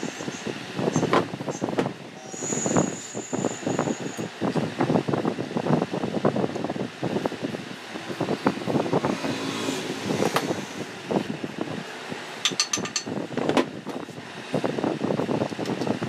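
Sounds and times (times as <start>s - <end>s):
vehicle passing: 8.1s - 11.3s.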